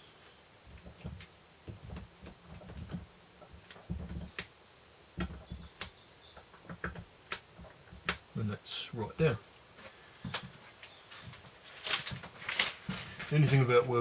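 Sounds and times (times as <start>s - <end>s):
gloved hand clicking and knocking: 0.7s - 4.6s, 5.2s - 8.4s, 10.2s - 13.3s.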